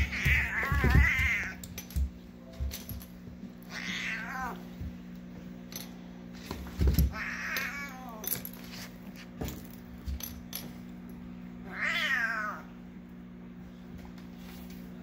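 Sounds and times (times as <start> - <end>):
steady low hum: 0.0 - 15.0
cat meowing: 3.7 - 4.6, 11.7 - 12.7.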